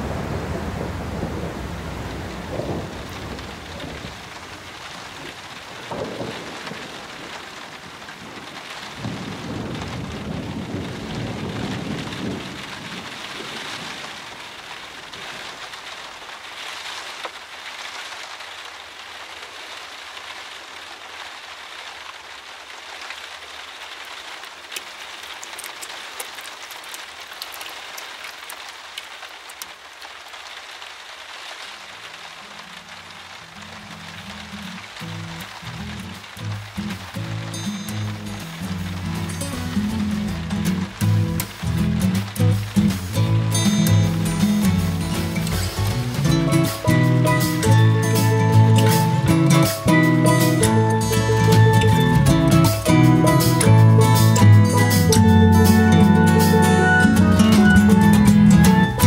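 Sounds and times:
thunder rumbling: 0.0 - 15.8, 32.0 - 59.0
steady rain: 0.0 - 59.0
drips pattering: 24.7 - 30.4.

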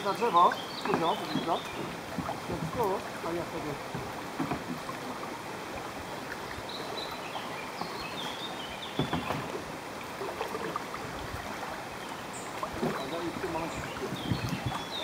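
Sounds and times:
kayak paddle knock: 0.0 - 5.4, 8.9 - 11.1, 12.6 - 15.0
river water rushing: 0.0 - 15.0.

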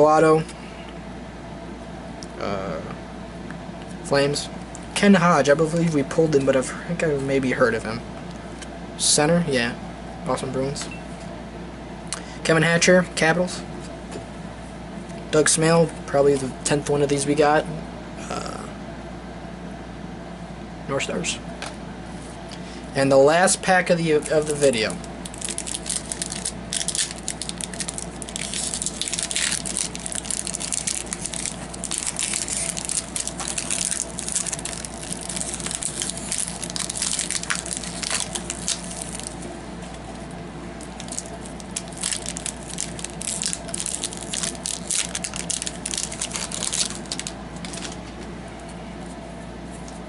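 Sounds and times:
card pack wrapper crinkling: 24.2 - 39.5, 40.8 - 48.0.

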